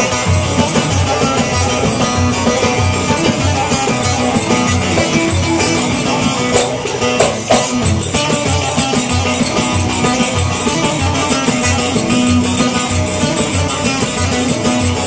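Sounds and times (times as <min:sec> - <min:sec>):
guitar playing: 0:00.0 - 0:15.0.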